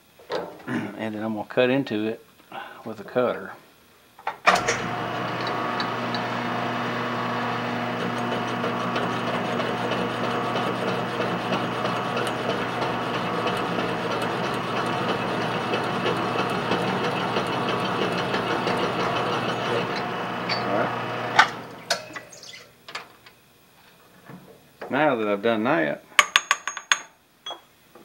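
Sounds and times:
milling machine motor hum: 4.5 - 22.2
mill cutting metal: 4.5 - 22.3.

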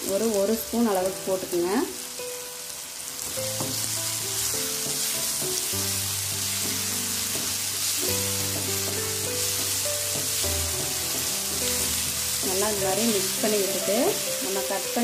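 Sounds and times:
background music: 0.0 - 15.0
food sizzling in pan: 0.0 - 15.0
wooden spatula stirring: 3.2 - 14.7.

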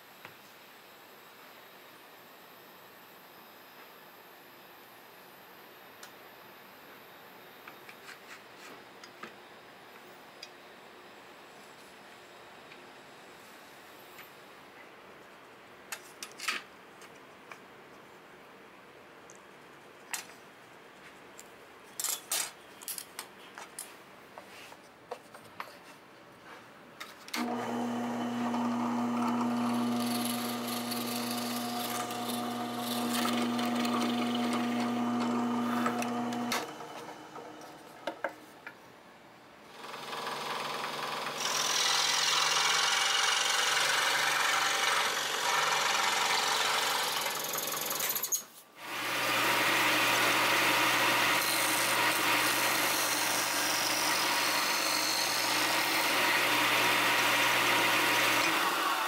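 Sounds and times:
drill press motor humming: 27.4 - 37.9, 48.9 - 59.0
scroll saw cutting: 27.4 - 37.9, 39.8 - 59.0
disc sander running: 27.4 - 38.0, 48.9 - 59.0.

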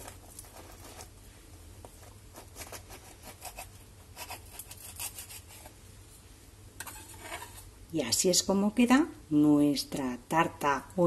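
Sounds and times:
knife sawing through pastry crust: 2.3 - 5.7, 6.9 - 7.6.

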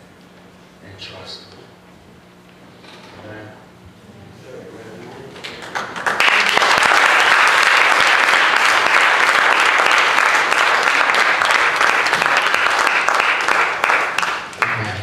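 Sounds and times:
congregation clapping: 5.4 - 15.0.

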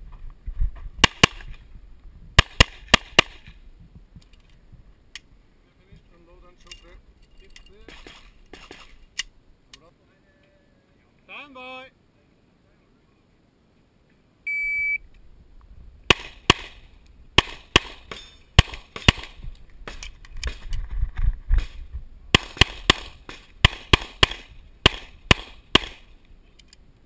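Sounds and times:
pistol shots: 2.4 - 3.5, 16.1 - 16.8, 17.4 - 20.6, 21.6 - 26.1
shot timer beep: 14.5 - 15.0.

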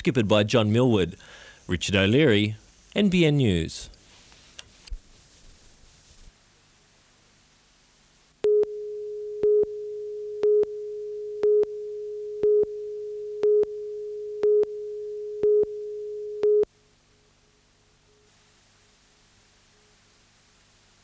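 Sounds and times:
countdown beeps: 8.4 - 16.7
steady line-up tone: 8.4 - 16.7.

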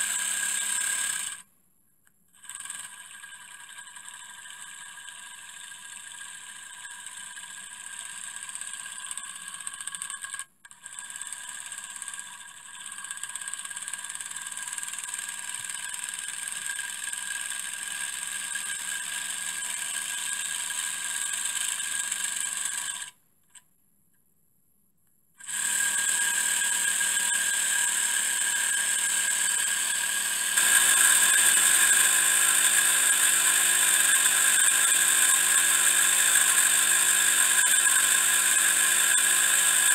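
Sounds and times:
steam engine whirring: 29.5 - 39.9.

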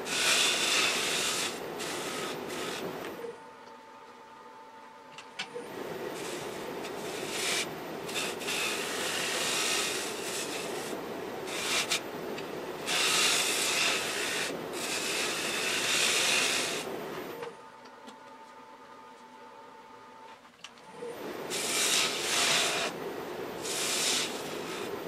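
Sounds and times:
gouge cutting wood on lathe: 0.0 - 3.2, 5.8 - 12.2, 12.8 - 17.0, 21.3 - 25.0.

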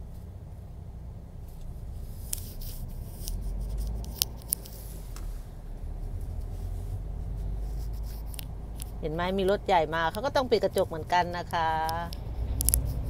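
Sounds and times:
truck rumble inside cab: 0.0 - 13.0
sharp clicks: 2.3 - 5.3, 8.0 - 13.0.

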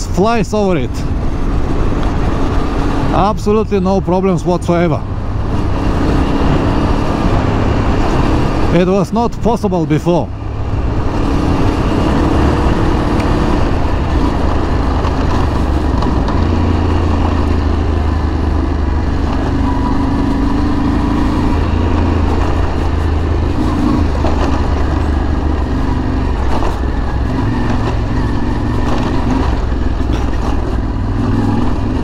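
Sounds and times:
motorcycle engine running: 10.3 - 32.0.

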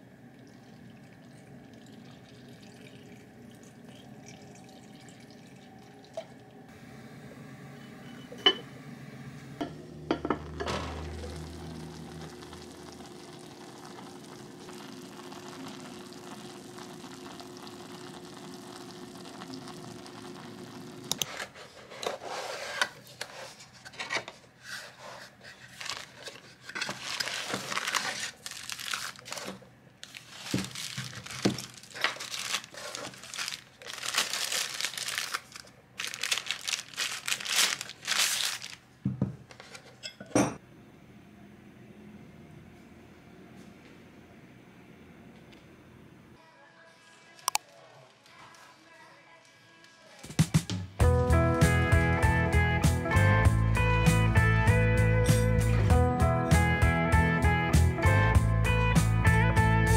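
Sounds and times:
pot hissing on stove: 6.9 - 21.4
paper and plastic wrapping crinkling: 24.8 - 38.9.

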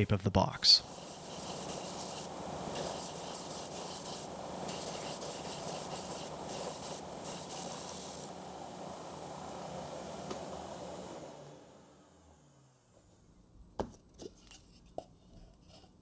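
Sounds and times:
wood grinding on sanding belt: 0.8 - 8.4
sander motor hum: 0.9 - 13.1.

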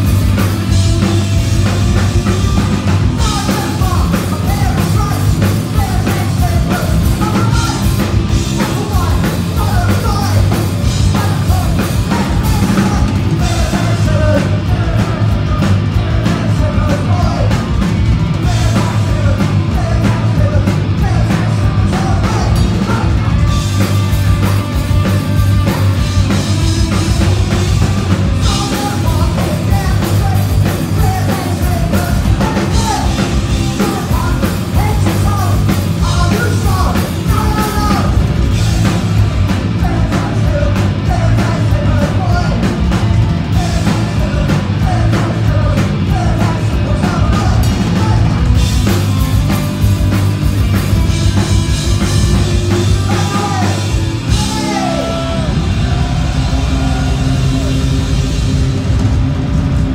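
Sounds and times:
punk rock band playing: 0.0 - 59.9
singer shouting vocals: 3.2 - 8.0, 8.6 - 17.6, 18.4 - 23.5, 27.0 - 39.0, 52.6 - 58.2.

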